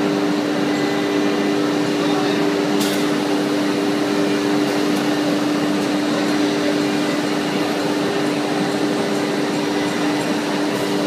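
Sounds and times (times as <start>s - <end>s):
cnc router spindle hum: 0.0s - 11.0s.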